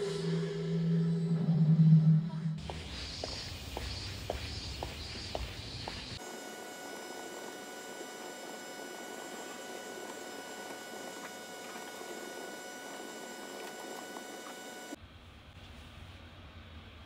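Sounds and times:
electrical hum with whining tones: 0.0 - 17.0
footsteps on pavement: 2.6 - 6.2.

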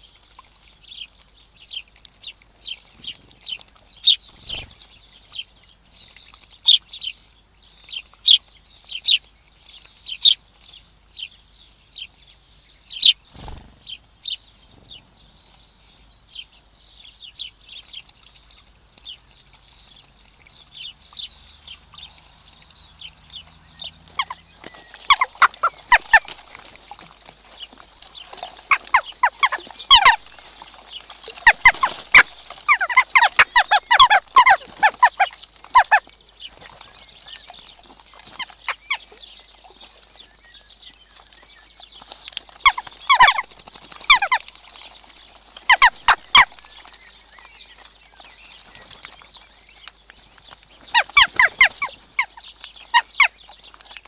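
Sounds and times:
small songbirds chirping: 0.0 - 54.0
jackdaws calling loudly: 24.1 - 26.7, 28.6 - 30.6, 31.3 - 36.1, 42.6 - 44.5, 45.7 - 46.6, 50.9 - 53.4.

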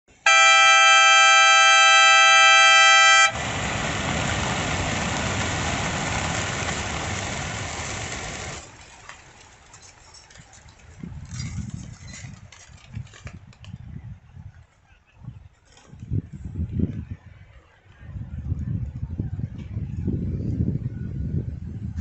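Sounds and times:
two-tone air horn: 0.1 - 3.4.

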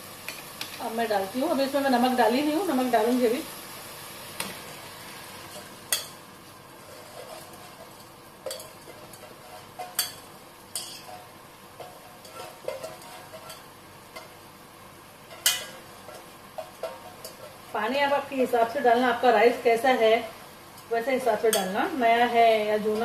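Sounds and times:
food sizzling in a pot: 0.0 - 23.0
metal utensils scraping a pot: 6.8 - 10.2, 10.8 - 14.3.

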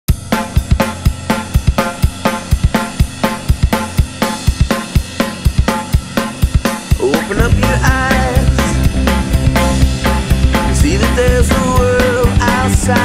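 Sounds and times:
fast drum kit beat: 0.1 - 13.0.

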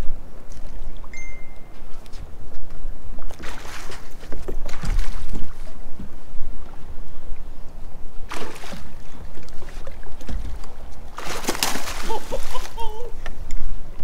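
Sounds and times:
water sloshing and splashing: 0.4 - 2.3, 3.2 - 7.5, 8.2 - 13.4.

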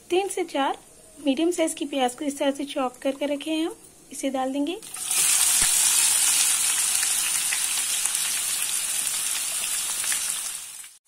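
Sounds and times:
onions sizzling in hot oil: 4.8 - 11.0.

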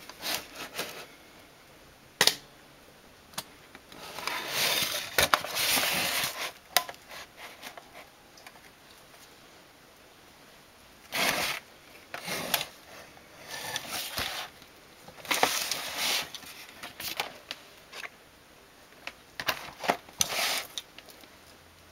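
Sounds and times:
objects scraping on a tabletop: 4.0 - 7.8, 13.4 - 14.5, 20.2 - 20.8.

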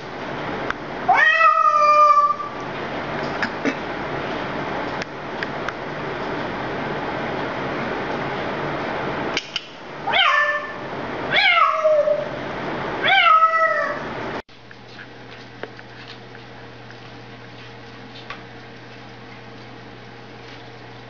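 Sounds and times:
parrot meowing like a cat: 1.1 - 2.5, 10.1 - 12.4, 13.0 - 14.1.

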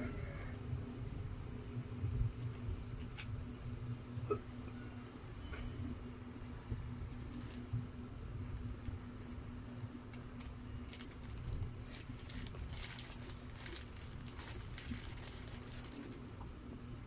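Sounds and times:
faint steady hum: 0.0 - 17.0
paper wrapper crinkling: 7.1 - 7.7, 10.4 - 16.3.

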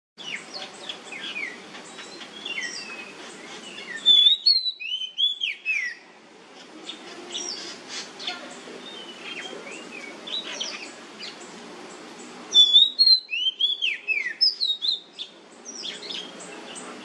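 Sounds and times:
bird chirping and whistling: 1.2 - 6.0, 12.5 - 16.3.

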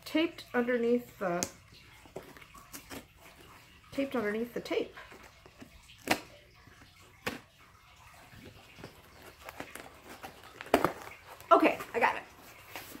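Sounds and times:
cardboard scraping and rustling: 8.4 - 13.0
cardboard box snapping: 9.5 - 11.1.

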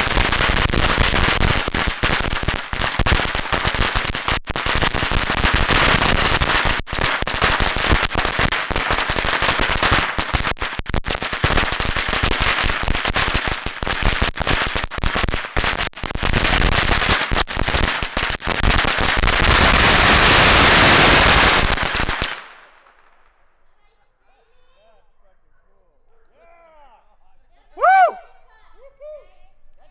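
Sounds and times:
firecrackers banging: 0.0 - 23.5.

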